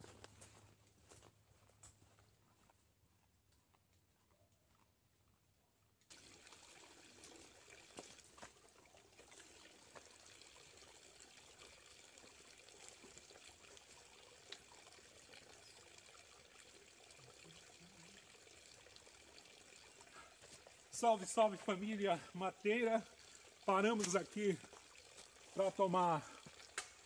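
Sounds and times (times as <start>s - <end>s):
water trickling over rocks: 6.1s - 27.0s.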